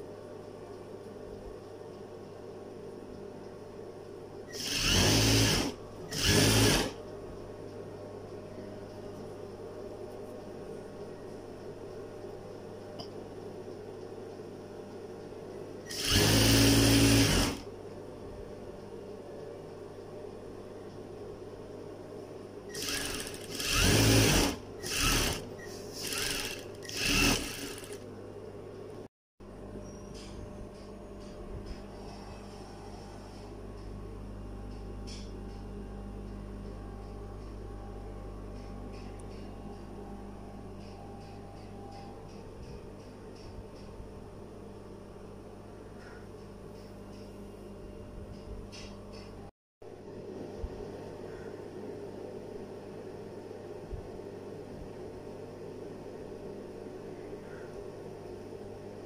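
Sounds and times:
steady low hum: 0.0s - 59.0s
sewing machine stitching: 4.5s - 7.0s, 15.9s - 17.6s, 22.7s - 28.0s.

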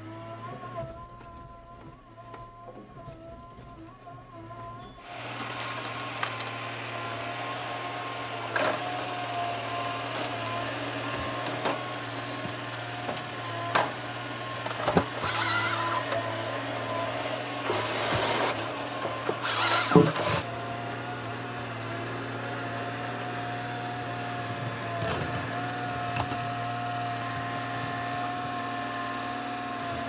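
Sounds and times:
harvester engine whine: 0.0s - 30.0s
tree cracking: 5.3s - 7.3s.

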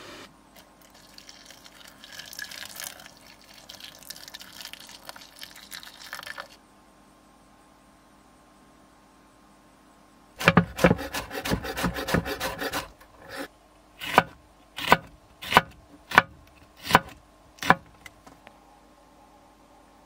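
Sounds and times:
knife chopping on wooden board: 10.4s - 17.9s.

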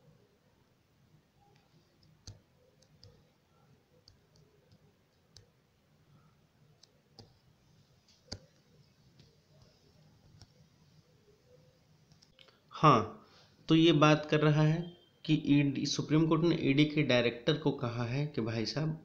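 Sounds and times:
fingers tapping tablet screen: 1.5s - 5.6s, 6.7s - 7.5s, 8.1s - 10.7s.

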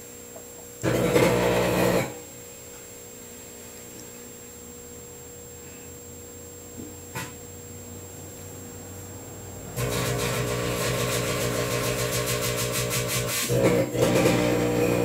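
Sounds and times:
microwave oven hum: 0.0s - 15.0s
loud electrical arcing buzz: 0.8s - 2.3s, 9.7s - 15.0s.

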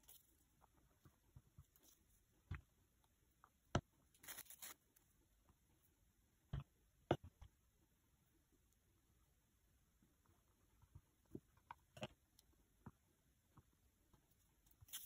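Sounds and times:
rustling scrape: 4.2s - 4.8s.

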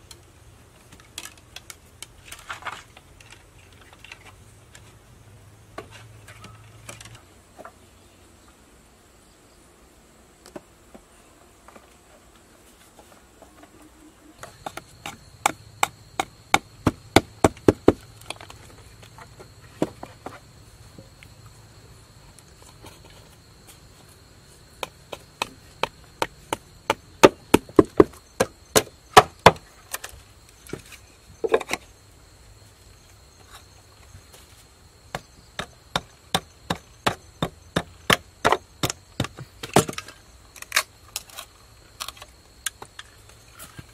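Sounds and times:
sharp wooden knocks on bamboo: 14.4s - 18.0s, 24.8s - 29.7s, 35.1s - 40.1s.

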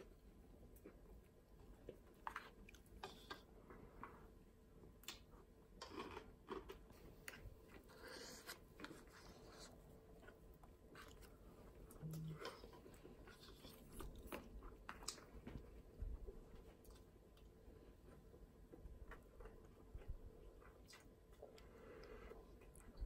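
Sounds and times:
person chewing food: 0.0s - 23.0s.

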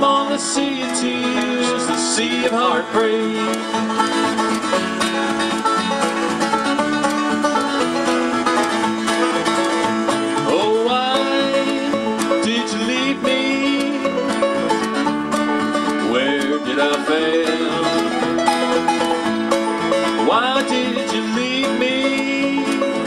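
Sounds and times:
banjo picking: 0.0s - 23.0s
strummed acoustic guitar: 0.0s - 23.0s
upright bass: 0.0s - 23.0s.

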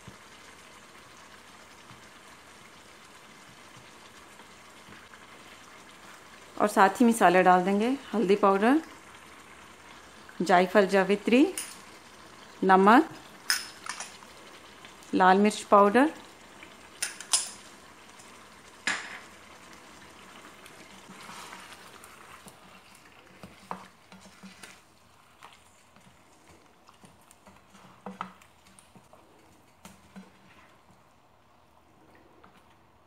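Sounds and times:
soft sizzle: 0.0s - 33.0s
spatula stirring thick sauce: 19.7s - 31.2s.

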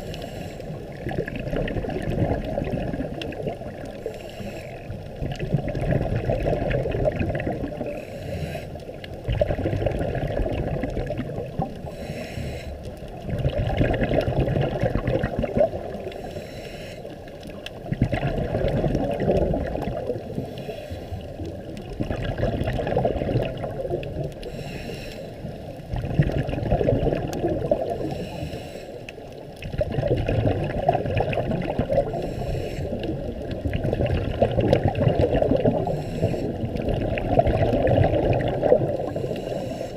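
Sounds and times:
faint inhale hiss: 0.0s - 1.0s, 3.7s - 5.2s, 7.7s - 9.1s, 11.5s - 13.2s, 15.7s - 17.6s, 20.1s - 21.7s, 24.2s - 25.8s, 27.7s - 29.4s, 32.0s - 33.6s, 35.6s - 37.0s, 38.9s - 39.9s
regulator exhale bubbles: 0.0s - 39.9s.

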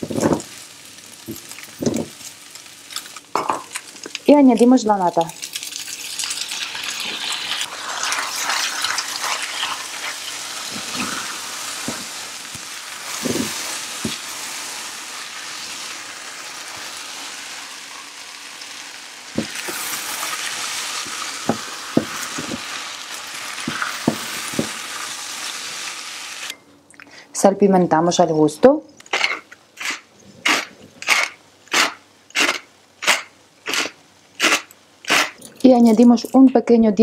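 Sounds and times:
food sizzling in a frying pan: 0.0s - 26.6s.

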